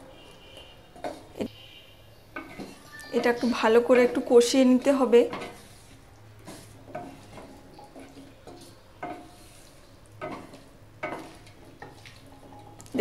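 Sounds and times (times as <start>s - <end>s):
spatula scraping a pan: 0.9s - 12.8s
spatula knocking metal pan: 10.2s - 12.6s.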